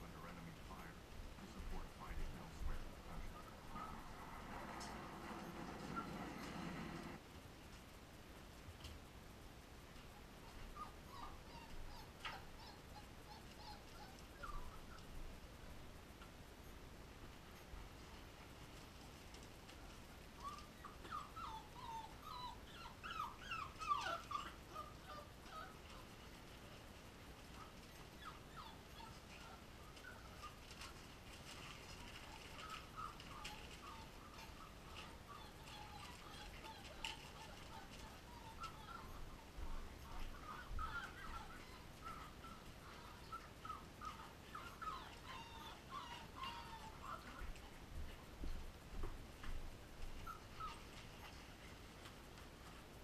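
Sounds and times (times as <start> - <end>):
puppies whimpering: 10.7 - 15.1, 20.4 - 26.3, 27.6 - 47.6, 50.2 - 51.5.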